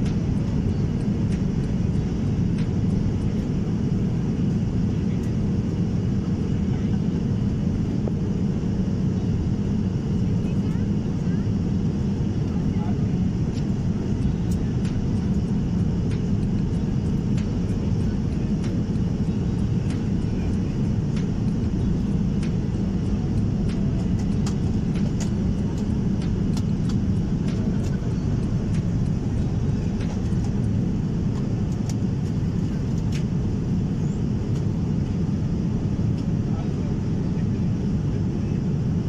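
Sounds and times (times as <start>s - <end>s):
airliner cabin engine rumble: 0.0s - 39.0s.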